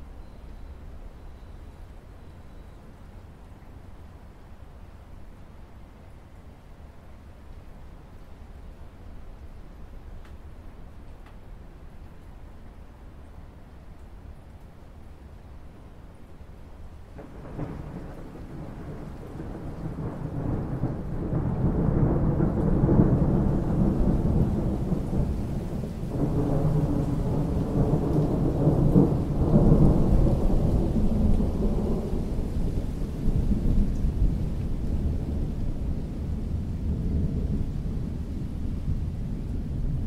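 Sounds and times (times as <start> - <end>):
rain falling on water: 0.0 - 40.0
thunder rumbling: 17.2 - 40.0.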